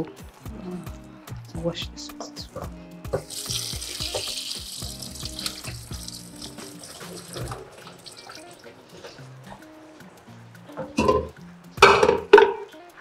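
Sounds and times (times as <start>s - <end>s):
tap water running into a sink: 3.2s - 8.8s.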